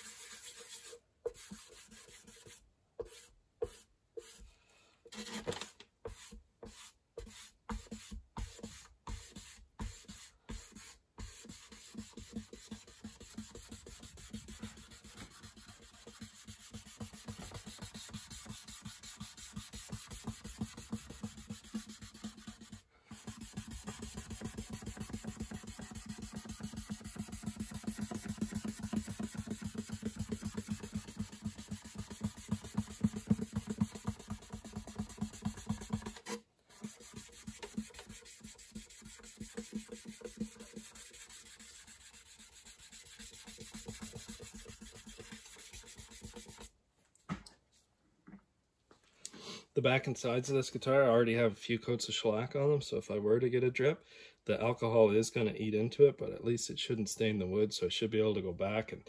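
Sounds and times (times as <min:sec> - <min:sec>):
cloth pad rubbing wood: 0:06.2 - 0:46.7.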